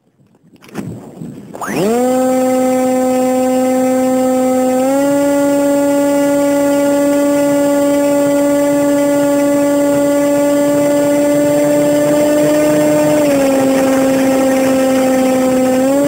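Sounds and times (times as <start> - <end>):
model plane motor hum: 1.5 - 16.0.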